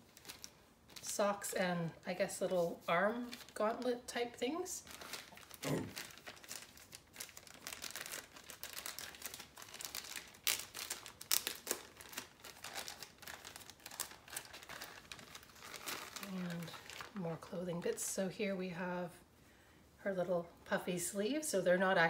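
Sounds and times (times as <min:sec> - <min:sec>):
plastic bags crinkling: 0:00.0 - 0:01.5, 0:02.6 - 0:18.1.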